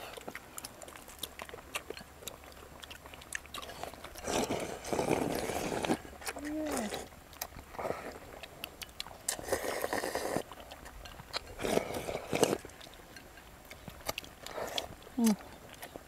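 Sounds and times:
people slurping noodles: 3.6 - 7.1, 9.3 - 10.5, 11.4 - 12.7.

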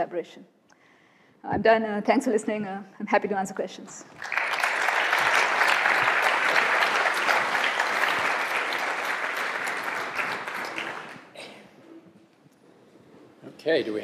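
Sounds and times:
audience applauding: 4.1 - 11.4.

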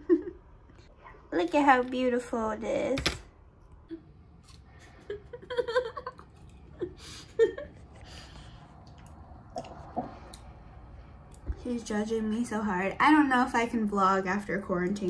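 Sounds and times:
person chewing fruit: 6.0 - 11.4.

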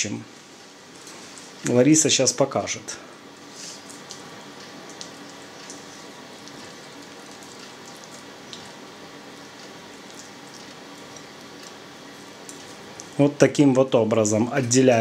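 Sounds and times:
faint hum: 0.0 - 15.0.

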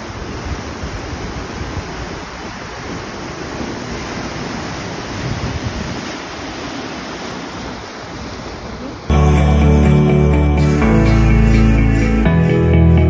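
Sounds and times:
wind buffeting microphone: 0.0 - 8.9
rushing churning water: 0.0 - 9.1.

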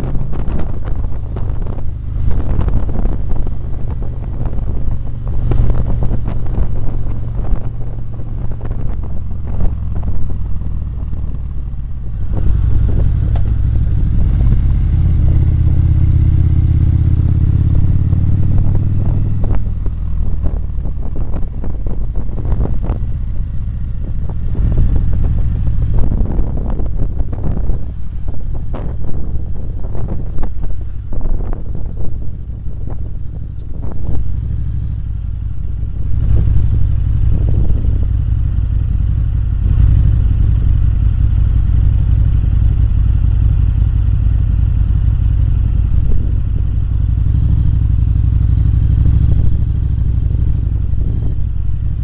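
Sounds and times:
wind buffeting microphone: 0.0 - 41.2, 45.6 - 52.0
motorcycle engine running: 0.0 - 52.0.

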